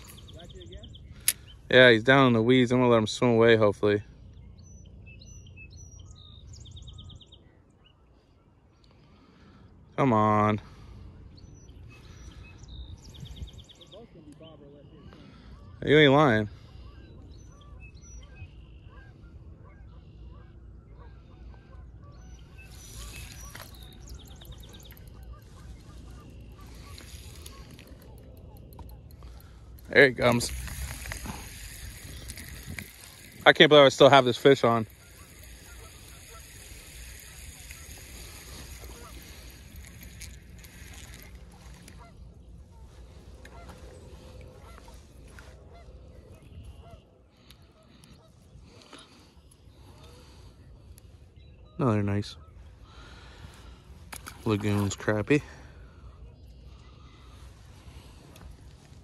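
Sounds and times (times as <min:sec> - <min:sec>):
geese honking: 0:18.8 - 0:49.0
fishing reel clicking: 0:22.6 - 0:42.0.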